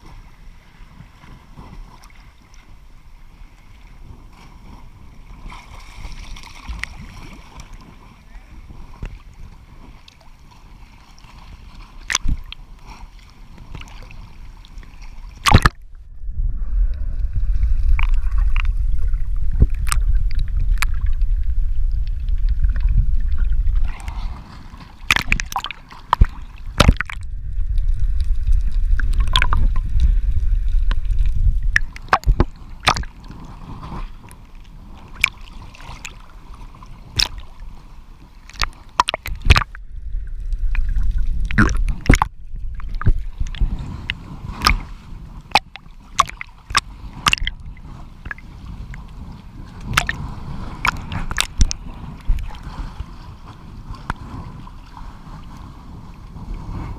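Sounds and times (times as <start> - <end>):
water sloshing and splashing: 0.6 - 16.2, 16.9 - 55.7
loud low muffled rumble: 15.8 - 24.0.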